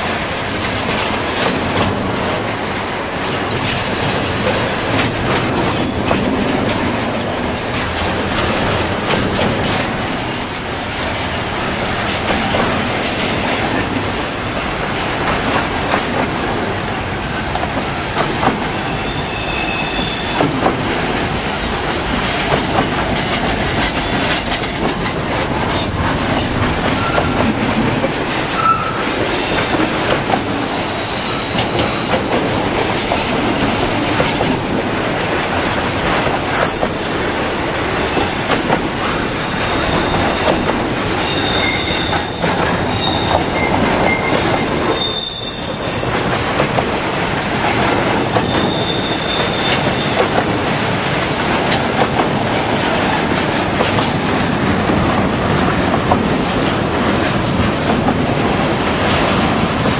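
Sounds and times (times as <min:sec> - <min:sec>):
train wheels rolling on rails: 0:00.0 - 0:59.9
high wheel squeals: 0:18.8 - 0:20.4, 0:26.9 - 0:27.4, 0:28.6 - 0:29.7, 0:39.1 - 0:46.2, 0:48.2 - 0:50.2, 0:51.1 - 0:51.5.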